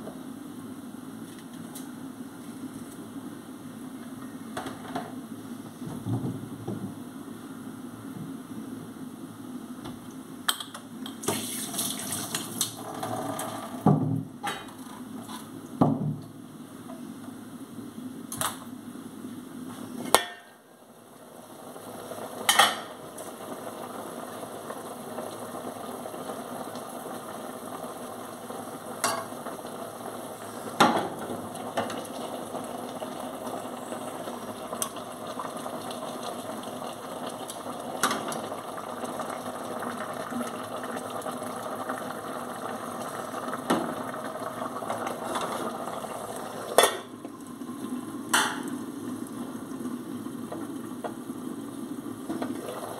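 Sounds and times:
food sizzling in a pan: 11.2s - 13.4s, 21.5s - 52.9s.

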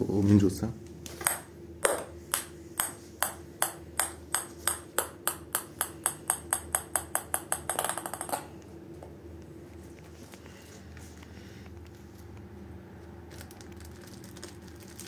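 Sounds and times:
ball bouncing on wooden floor: 1.2s - 8.5s.

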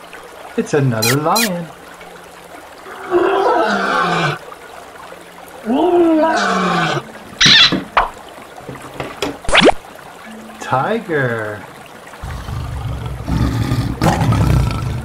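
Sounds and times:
lion roaring: 12.2s - 15.0s.

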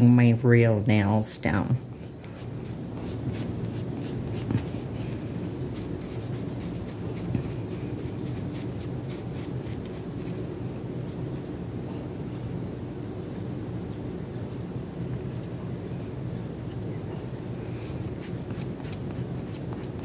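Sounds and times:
steady low hum: 0.0s - 20.0s
nail buffer scratching: 17.4s - 20.0s.

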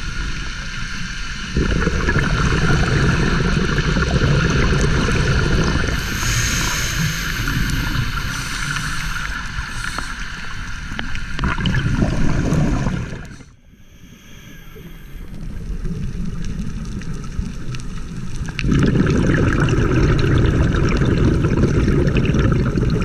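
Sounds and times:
underwater regulator bubbles gurgling: 0.1s - 23.0s
steady hiss: 5.8s - 11.4s, 12.6s - 18.3s.

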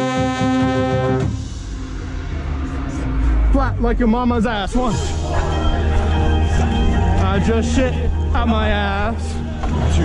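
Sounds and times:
brass horns chord: 0.0s - 1.8s
low rumble: 1.2s - 10.0s.

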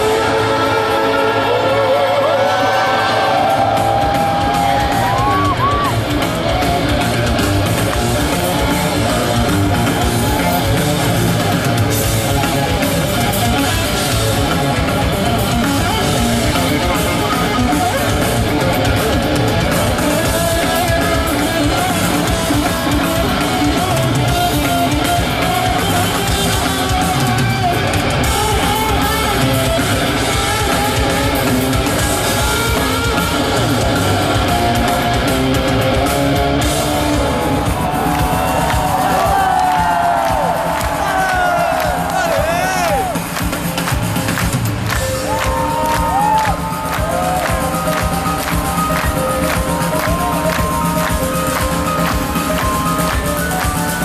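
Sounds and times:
loud live rock band: 0.0s - 54.0s.

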